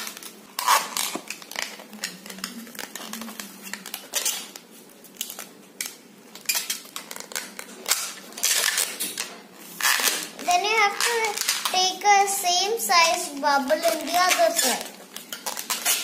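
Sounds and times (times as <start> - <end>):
balloon squeaking and rubbing: 0.6 - 4.6, 9.7 - 11.6, 13.6 - 16.0.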